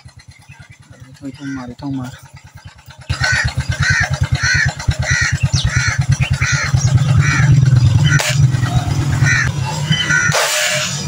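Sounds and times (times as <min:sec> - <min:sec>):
bird harsh calls: 0:00.0 - 0:11.0
small engine chugging: 0:00.0 - 0:11.0
sharp crack: 0:10.3 - 0:11.0.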